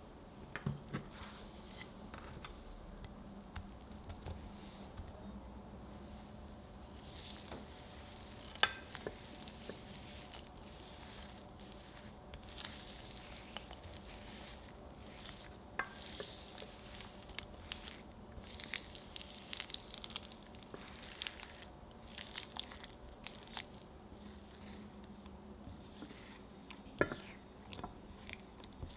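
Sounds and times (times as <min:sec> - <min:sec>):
spatula scraping glass bowl: 0:07.0 - 0:18.6.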